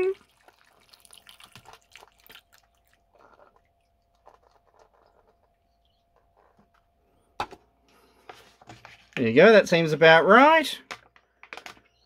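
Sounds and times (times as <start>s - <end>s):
water dripping: 0.0s - 6.3s
water trickling: 0.0s - 6.5s.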